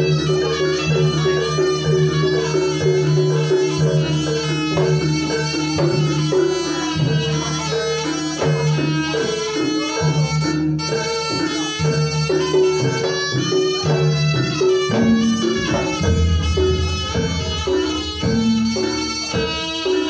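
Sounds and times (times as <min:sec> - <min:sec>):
drums marking the beat: 0:00.0 - 0:20.0
sustained low tone: 0:16.0 - 0:18.4.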